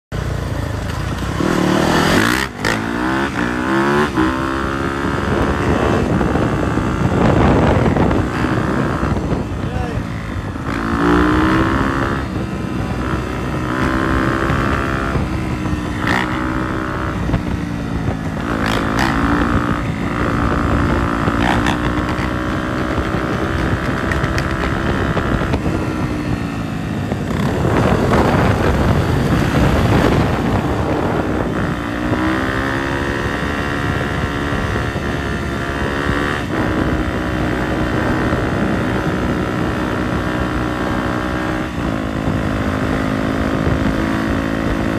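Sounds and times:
dirt bike engines revving: 0:00.4 - 0:44.9
wind buffeting microphone: 0:00.6 - 0:44.9.

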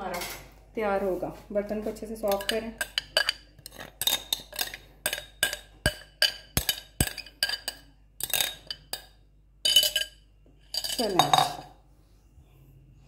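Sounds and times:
metal spoon clinking on bowl: 0:02.2 - 0:11.7.

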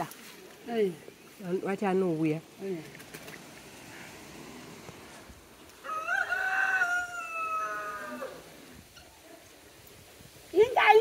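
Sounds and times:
rooster crowing: 0:05.8 - 0:08.6.

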